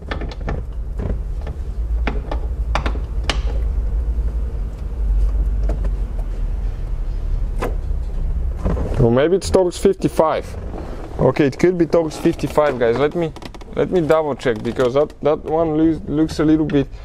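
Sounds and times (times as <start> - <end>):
low rumble: 0.6 - 13.8.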